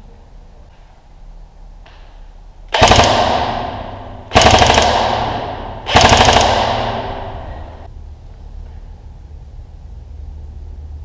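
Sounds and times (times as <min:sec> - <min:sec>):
airsoft rifle firing bursts: 0:02.7 - 0:07.9.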